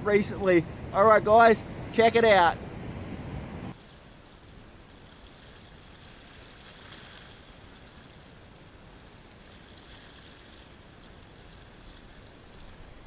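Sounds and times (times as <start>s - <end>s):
small waves lapping against rocks: 3.7s - 13.0s.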